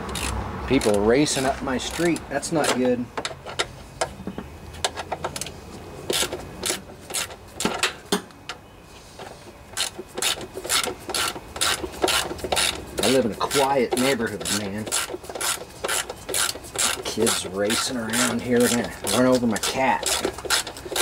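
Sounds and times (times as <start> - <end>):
ratchet wrench clicking: 0.0 - 2.8, 9.8 - 21.0.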